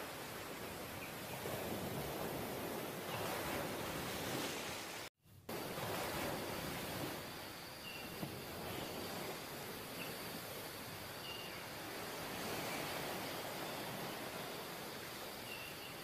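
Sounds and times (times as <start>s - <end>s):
surf washing up beach: 0.0s - 16.0s.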